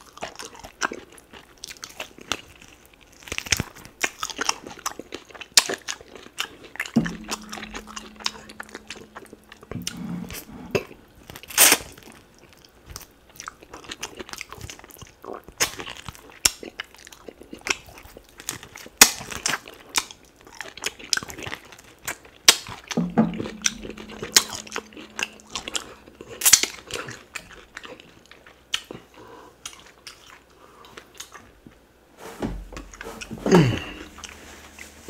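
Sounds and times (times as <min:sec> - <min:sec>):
person chewing meat off bone: 0:00.0 - 0:07.0, 0:26.2 - 0:31.5
low hum: 0:07.0 - 0:11.2, 0:23.0 - 0:27.8.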